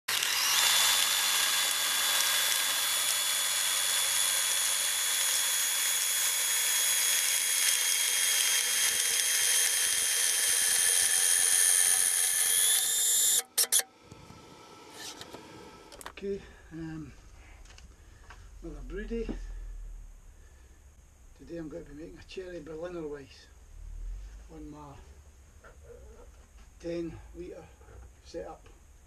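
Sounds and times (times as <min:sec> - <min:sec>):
drill motor whine: 0:00.1 - 0:13.9.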